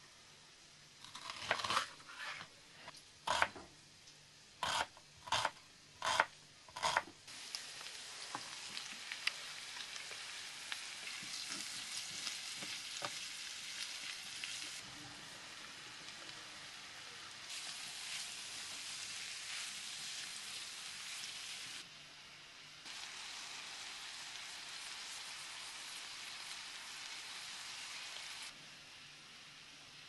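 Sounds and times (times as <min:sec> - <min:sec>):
knife slicing onion on board: 0:03.3 - 0:03.6, 0:04.6 - 0:07.1
vegetables and meat sizzling in oil: 0:06.8 - 0:30.0.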